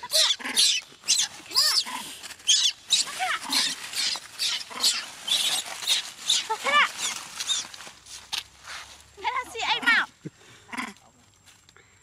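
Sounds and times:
monkey screaming shrill cries: 0.0s - 7.7s.

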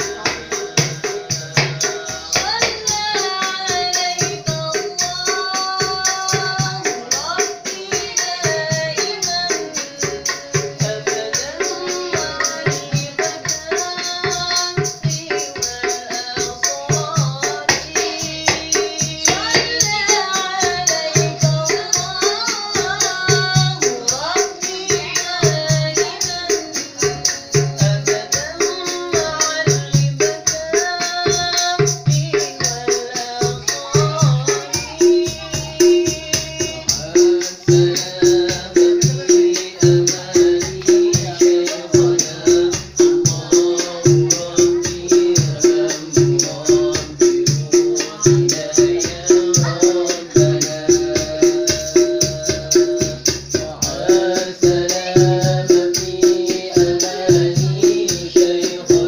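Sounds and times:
hand drums thumping: 0.0s - 59.0s
man singing: 0.0s - 59.0s.

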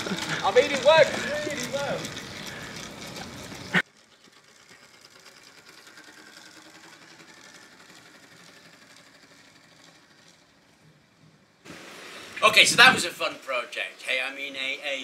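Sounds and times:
electric motor and chain whirring: 0.0s - 11.6s.

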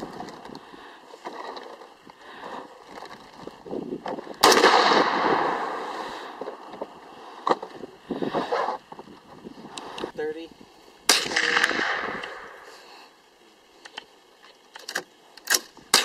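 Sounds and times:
rifle shot with echo: 4.4s - 5.9s, 11.1s - 12.6s.

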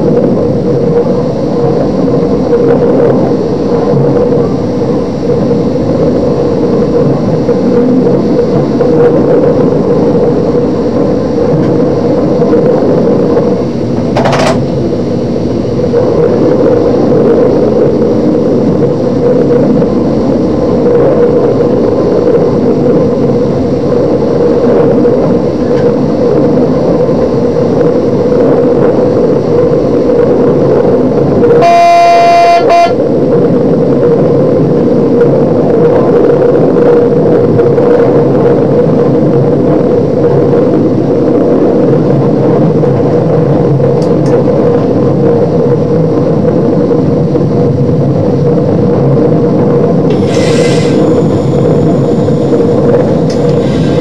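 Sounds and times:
train engine and wheel-on-rail noise: 0.0s - 54.0s
train horn: 31.5s - 33.0s.

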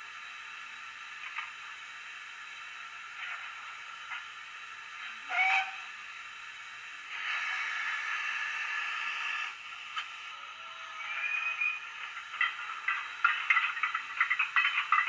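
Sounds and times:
steam hissing: 0.0s - 15.0s
steam whistle toot: 5.2s - 5.9s.

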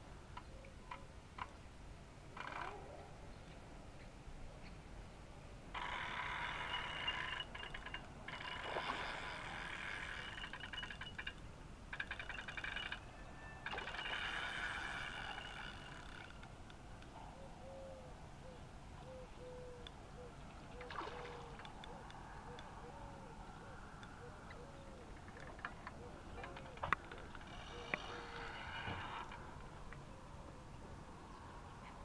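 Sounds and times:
fishing reel ratcheting whirr: 5.8s - 13.1s, 13.7s - 16.5s, 26.9s - 29.4s.

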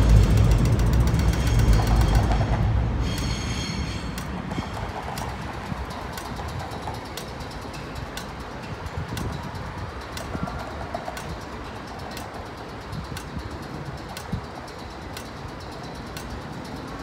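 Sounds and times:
tram rumbling on tracks: 0.0s - 17.0s
sharp clicks: 4.1s - 17.0s.

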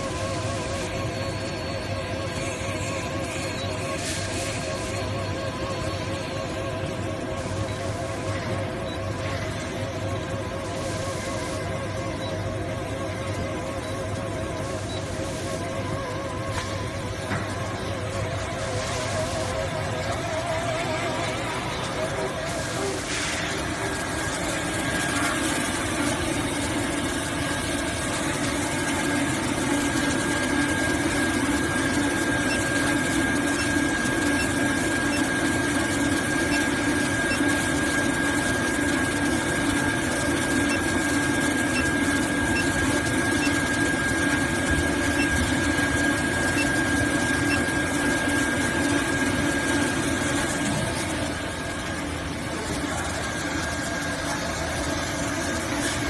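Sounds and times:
thin high whine: 0.0s - 56.0s
cutting machine humming: 13.3s - 56.0s.

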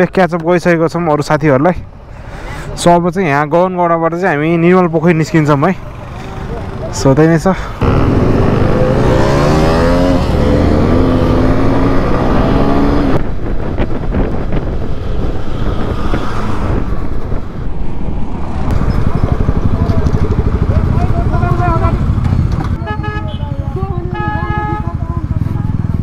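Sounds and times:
motorcycle engine accelerating: 5.8s - 22.8s
wind rush on microphone: 7.8s - 21.1s.

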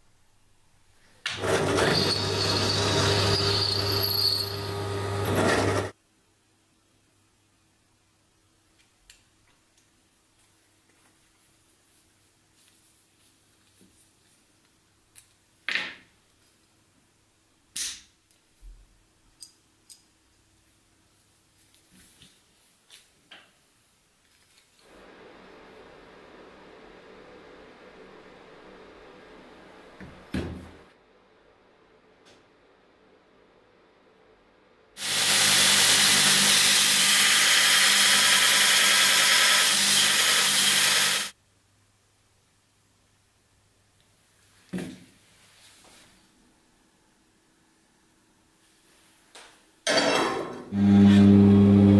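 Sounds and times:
belt grinder grinding metal rod: 1.4s - 5.9s, 35.0s - 41.3s.

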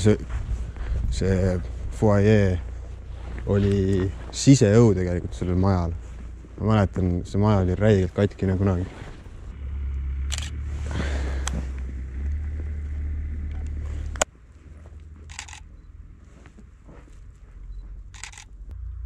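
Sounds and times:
wind rumbling on microphone: 0.0s - 14.2s
footsteps crunching in snow: 0.0s - 18.2s
camera shutter click: 10.3s - 10.5s, 15.3s - 15.6s, 18.2s - 18.5s.

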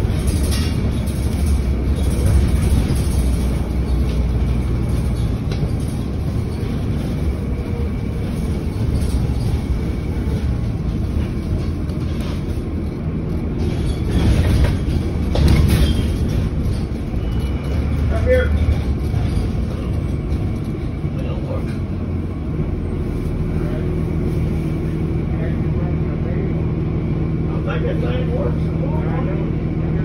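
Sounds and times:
bus engine and road rumble: 0.0s - 30.0s
bus body knocks: 13.5s - 17.2s.

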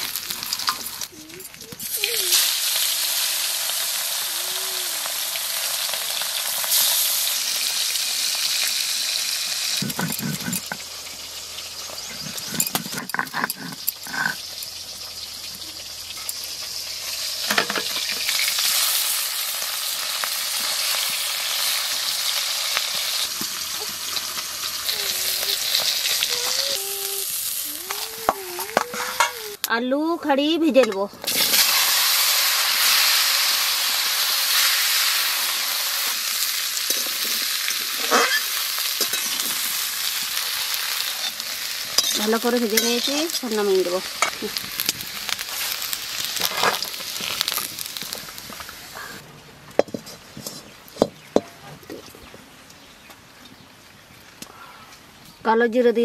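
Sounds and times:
fish sizzling in oil: 0.0s - 29.6s, 31.3s - 49.2s
stone roller scraping grinding slab: 9.8s - 10.8s, 12.0s - 14.4s.

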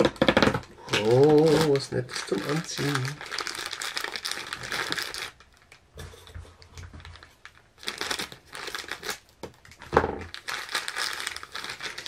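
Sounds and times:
plastic bag crinkling: 0.0s - 5.9s, 6.6s - 12.0s
scissors cutting plastic bag: 0.9s - 5.4s, 7.8s - 9.3s, 10.2s - 12.0s.

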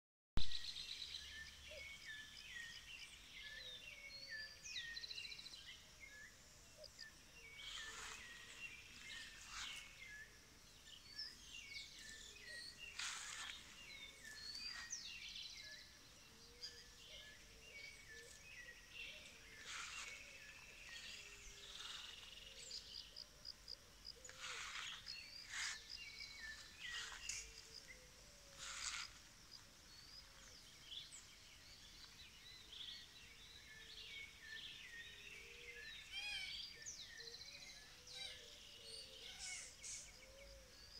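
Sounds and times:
songbirds chirping and whistling: 0.4s - 40.9s
lower wavering bird calls: 33.8s - 40.9s.

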